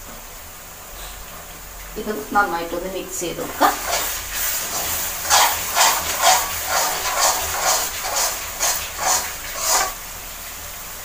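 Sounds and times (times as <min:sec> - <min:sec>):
paste sizzling in oil: 0:03.6 - 0:10.5
metal spatula scraping a pan: 0:03.8 - 0:10.0.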